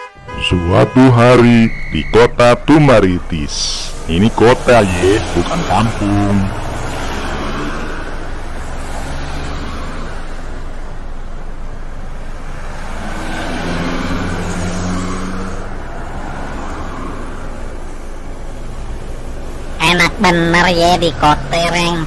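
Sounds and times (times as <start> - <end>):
deep engine drone: 0.0 - 7.1
passing traffic hum: 0.0 - 22.0.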